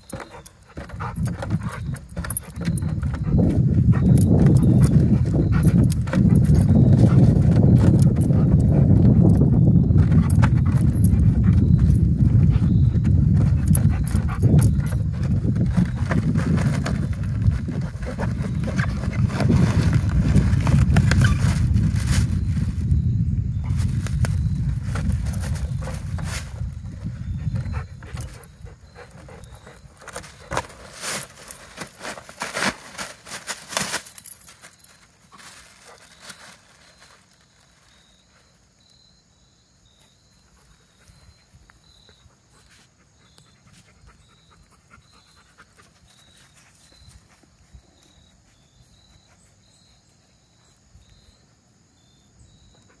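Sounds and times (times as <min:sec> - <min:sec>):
foil balloon crinkling: 0:00.0 - 0:23.0, 0:23.7 - 0:38.5
dog panting: 0:00.2 - 0:08.8, 0:27.3 - 0:30.8
faint high chirp: 0:09.0 - 0:17.2, 0:21.0 - 0:30.7, 0:34.2 - 0:53.0.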